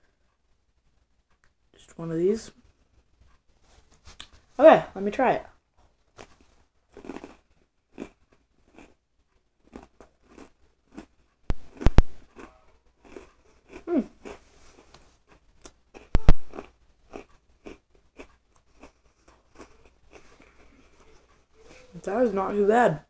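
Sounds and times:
person chewing crunchy cookie: 6.2s - 21.7s.

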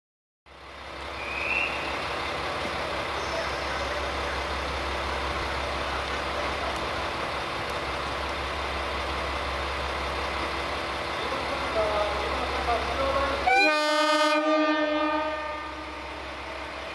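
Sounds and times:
diesel railcar engines droning: 0.5s - 16.9s.

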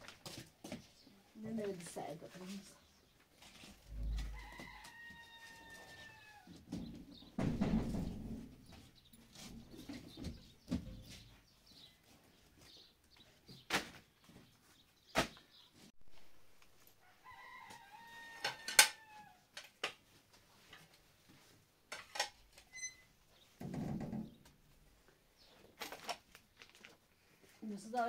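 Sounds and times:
rooster crowing: 4.2s - 6.5s, 17.0s - 19.4s
sharp knocks: 7.4s - 8.8s.

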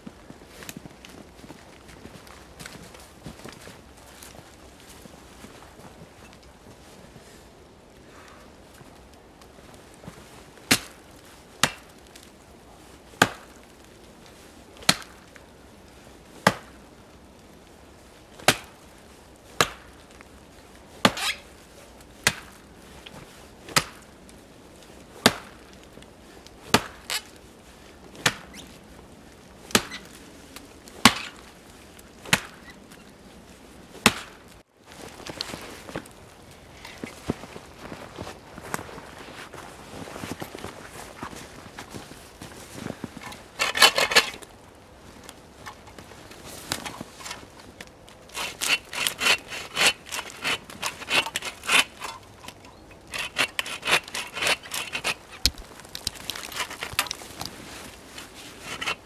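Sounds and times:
axe chopping tree: 10.7s - 11.0s, 11.6s - 11.9s, 13.2s - 13.5s, 14.8s - 15.1s, 16.4s - 16.7s, 18.4s - 18.7s, 19.6s - 20.0s, 21.0s - 21.3s, 22.2s - 22.6s, 23.7s - 24.0s, 25.2s - 25.6s, 26.7s - 27.2s, 28.2s - 28.5s, 29.7s - 30.1s, 31.0s - 31.4s, 32.3s - 32.6s, 34.0s - 34.4s, 48.4s - 57.2s.

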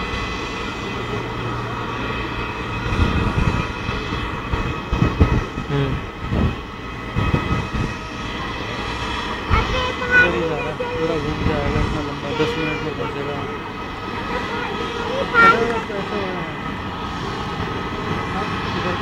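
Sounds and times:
low thumps and rumbles: 0.0s - 10.2s
jet engines humming and whining: 0.0s - 19.0s.

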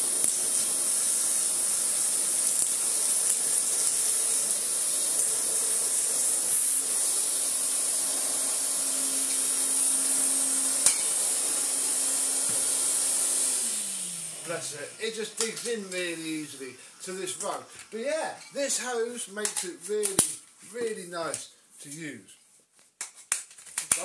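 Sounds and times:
vacuum cleaner running: 0.0s - 18.3s.

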